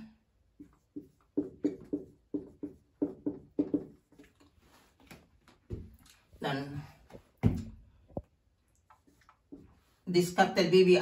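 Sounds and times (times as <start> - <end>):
writing scratches and taps: 0.5 - 4.5.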